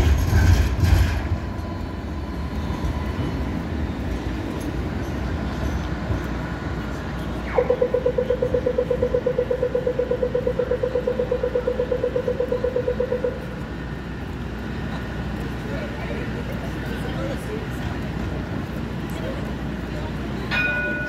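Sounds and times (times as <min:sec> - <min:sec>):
low traffic and tram rumble: 0:00.0 - 0:21.0
rapid crossing signal ticking: 0:07.5 - 0:15.6.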